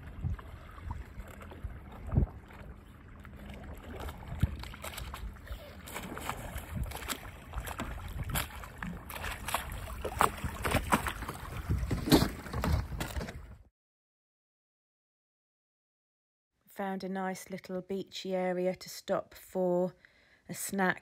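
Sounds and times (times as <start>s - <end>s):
wind rumbling on microphone: 0.0s - 12.2s
water splashing around paddleboard: 0.0s - 13.6s.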